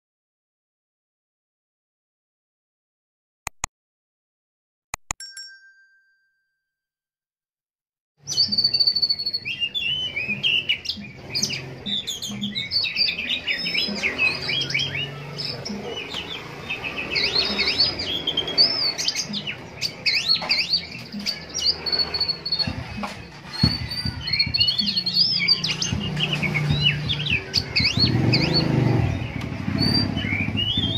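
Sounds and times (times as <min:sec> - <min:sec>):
bird singing: 0:08.2 - 0:30.9.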